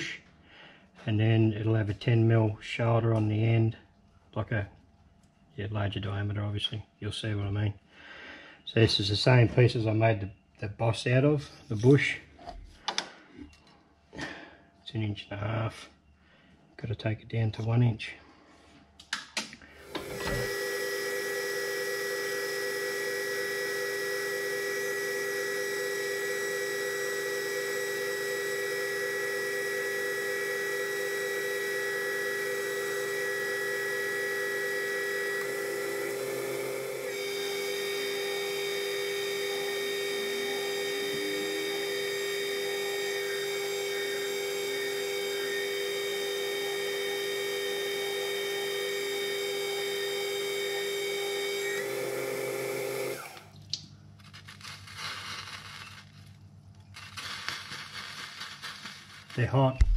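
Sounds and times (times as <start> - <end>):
metal lathe whining: 19.8 - 53.5.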